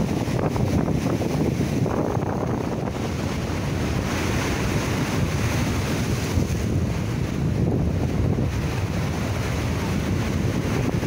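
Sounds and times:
sea waves breaking on rocks: 0:00.0 - 0:11.0
wind rumbling on microphone: 0:00.0 - 0:11.0.

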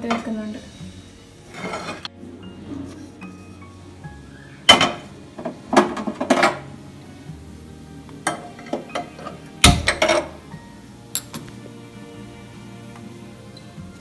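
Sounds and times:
frying pan clanking on grate: 0:04.7 - 0:06.7.

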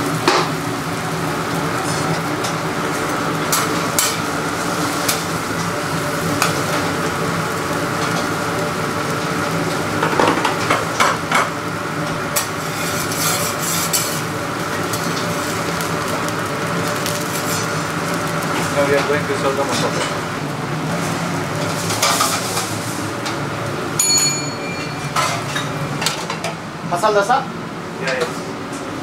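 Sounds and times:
batter sizzling: 0:00.0 - 0:23.9
steady machine hum: 0:00.0 - 0:29.0
metal spatula scraping griddle: 0:12.4 - 0:14.3, 0:16.9 - 0:18.0.

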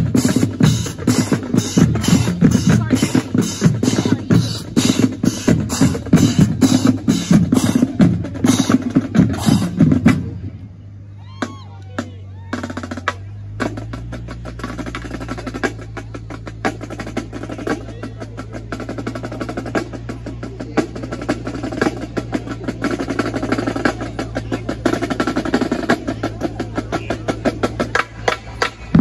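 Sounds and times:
snare drum line cadence: 0:11.4 - 0:29.0.

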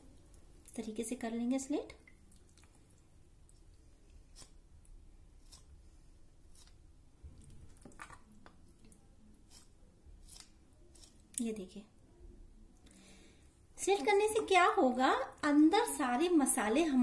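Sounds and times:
knife slitting raw meat: 0:04.3 - 0:04.7, 0:05.4 - 0:05.8, 0:06.5 - 0:06.8, 0:09.4 - 0:11.2.

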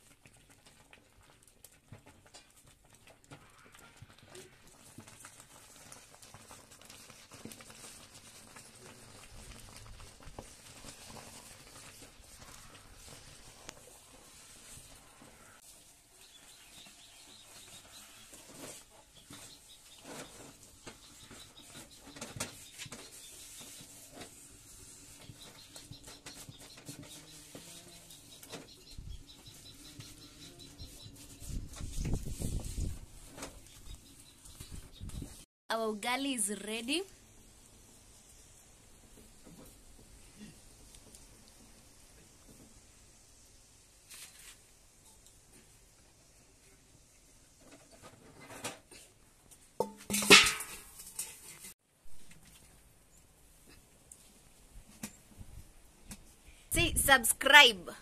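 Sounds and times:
wooden stick stirring dough in pot: 0:00.0 - 0:32.6
wooden spoon knocking metal pot: 0:49.8 - 0:50.8.

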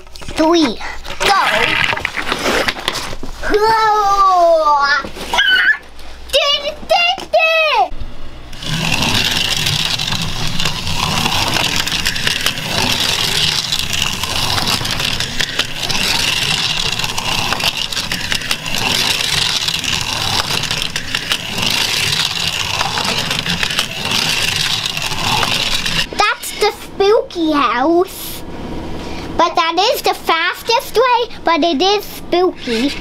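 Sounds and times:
slot car motors whirring: 0:07.8 - 0:28.0.

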